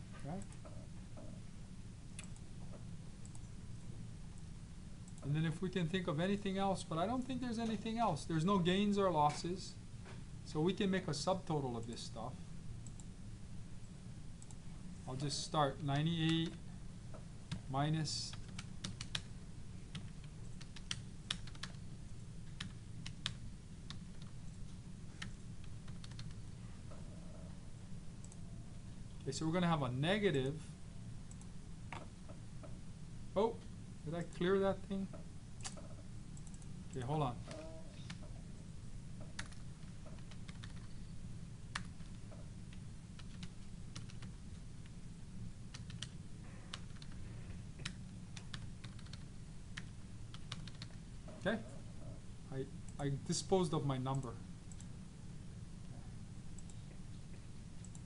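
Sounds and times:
steady low hum: 0.0 - 58.0
keyboard keys clicking: 19.9 - 21.8, 25.2 - 26.4, 39.2 - 41.0, 43.2 - 44.3, 45.7 - 47.2, 47.8 - 49.2, 49.8 - 51.0
keyboard keys tapping: 25.2 - 27.0.

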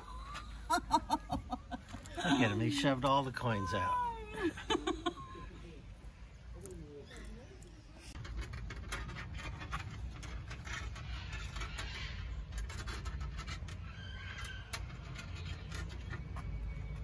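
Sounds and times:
rapid irregular clicks and scratching: 8.0 - 17.0.

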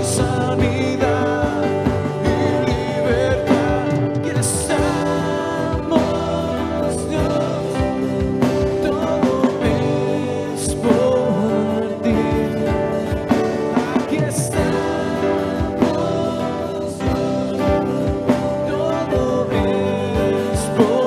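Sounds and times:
drums: 0.0 - 21.0
guitars: 0.0 - 21.0
keyboard: 0.0 - 21.0
person singing: 0.0 - 21.0.

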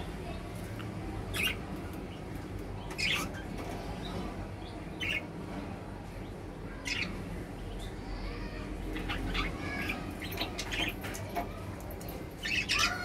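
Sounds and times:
budgerigars chirping: 1.3 - 1.6, 3.0 - 3.4, 12.4 - 13.0.

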